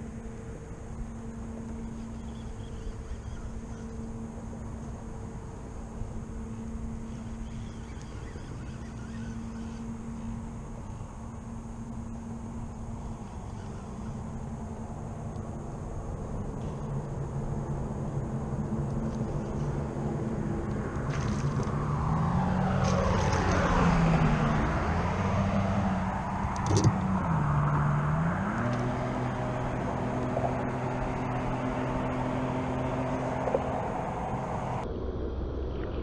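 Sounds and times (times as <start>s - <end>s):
low engine drone: 0.0s - 36.0s
vehicle passing by: 0.0s - 36.0s.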